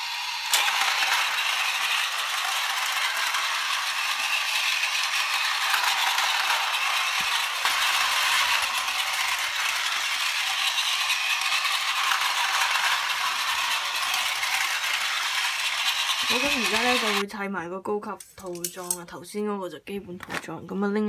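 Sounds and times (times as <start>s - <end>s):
toy train motor whirring: 0.0s - 17.2s
toy train rattling on plastic track: 0.0s - 17.2s, 18.3s - 19.0s.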